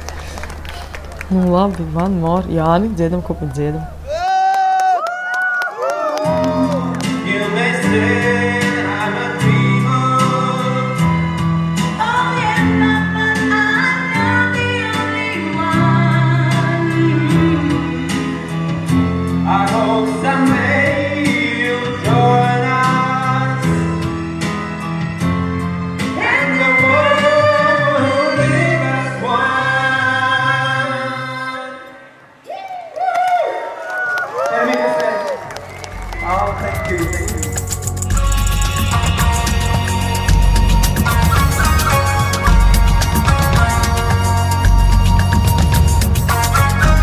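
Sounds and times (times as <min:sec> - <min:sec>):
man singing into microphone: 0:06.5 - 0:11.3, 0:19.4 - 0:24.0, 0:26.1 - 0:32.1
backing track with beat and bass: 0:35.6 - 0:47.0.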